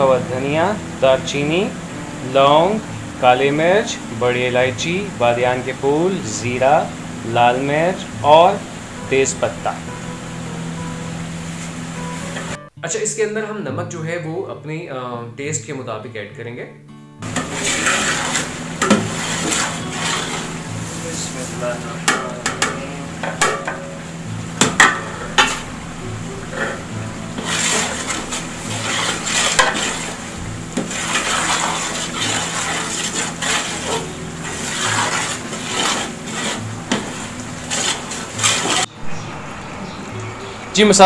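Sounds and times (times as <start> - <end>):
steady hiss: 0.0 - 12.6, 17.2 - 41.0
metal ladle scraping pot: 17.2 - 39.2
ladle clinking against pot: 22.0 - 23.9.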